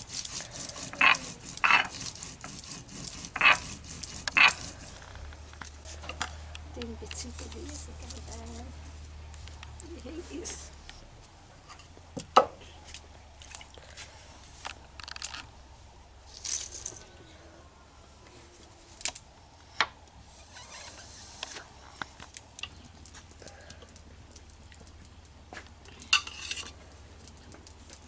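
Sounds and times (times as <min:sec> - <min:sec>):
metal spoon scraping pressure cooker: 0:00.0 - 0:01.9, 0:03.3 - 0:03.6.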